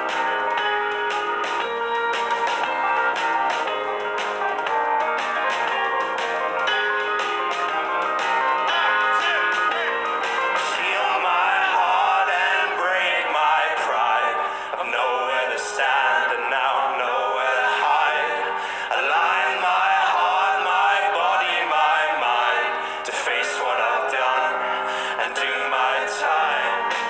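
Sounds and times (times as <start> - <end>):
drums: 0.0 - 12.6, 26.2 - 27.0
men singing together: 10.4 - 27.0.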